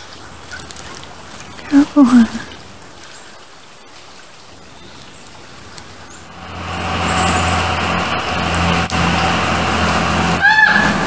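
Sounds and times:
steady engine drone: 6.2s - 11.0s.

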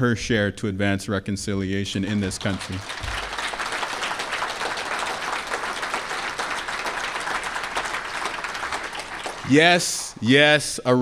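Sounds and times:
audience applauding: 2.1s - 10.4s.

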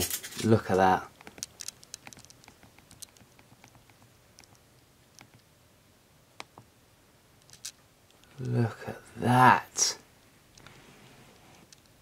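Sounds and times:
faint small clicks and ticks: 1.1s - 5.5s, 7.4s - 8.6s, 11.4s - 12.0s.

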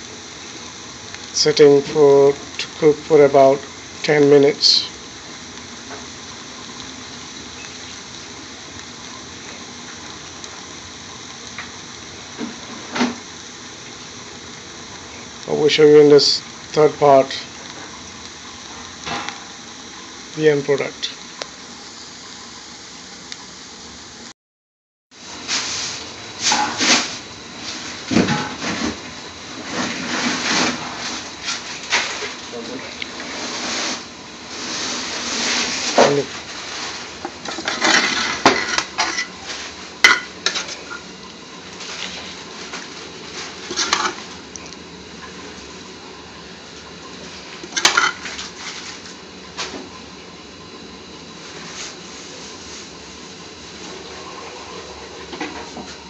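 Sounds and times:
spinach sizzling in pan: 0.0s - 24.3s, 25.2s - 49.7s
steady hiss: 0.0s - 24.3s
utensil scraping a pan: 36.6s - 41.0s, 43.3s - 44.2s.

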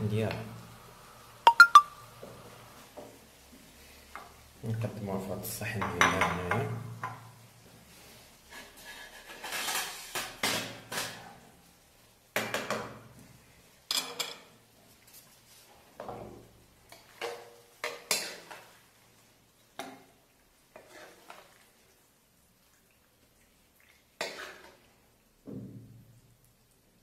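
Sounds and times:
wooden spatula scraping pan: 8.5s - 10.3s, 20.7s - 21.5s
bowl and pan clattering on counter: 13.9s - 14.5s.

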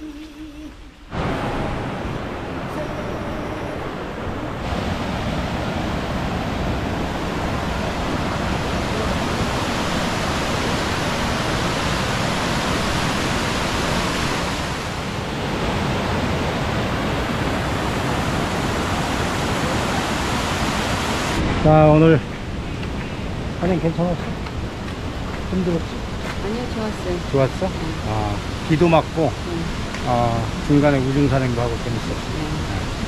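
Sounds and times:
stream water rushing: 0.0s - 33.0s.

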